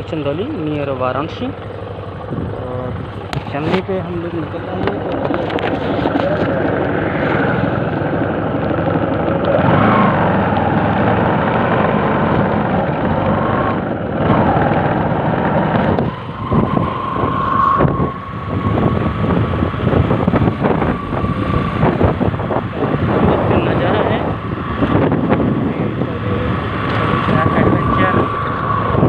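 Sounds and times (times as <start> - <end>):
motorcycle engine running: 0.0 - 29.0
thin steady whine: 0.0 - 29.0.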